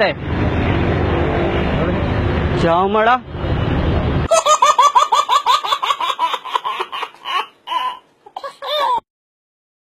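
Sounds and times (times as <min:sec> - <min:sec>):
baby laughing: 0:04.3 - 0:09.1.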